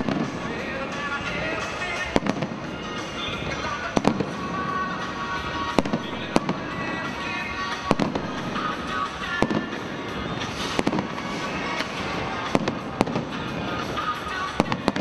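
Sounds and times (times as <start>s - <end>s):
firework shells bursting: 0.0s - 15.0s
music playing: 0.0s - 15.0s.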